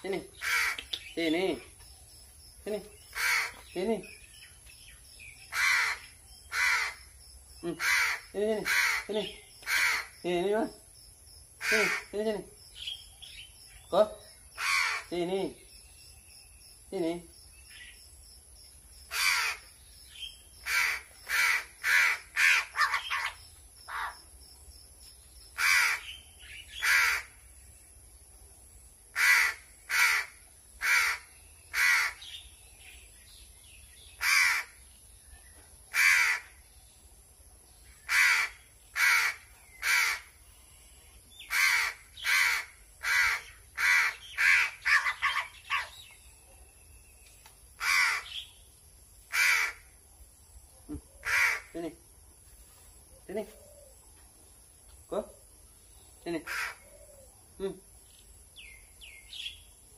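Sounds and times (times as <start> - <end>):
crow cawing: 0.4 - 0.9, 3.1 - 3.6, 5.5 - 7.0, 7.8 - 10.2, 11.6 - 12.1, 14.6 - 15.1, 19.1 - 19.7, 20.6 - 24.2, 25.6 - 27.4, 29.2 - 32.4, 34.2 - 34.8, 35.9 - 36.6, 38.1 - 40.3, 41.5 - 45.9, 47.8 - 48.4, 49.3 - 49.9, 51.2 - 51.8, 56.5 - 57.2.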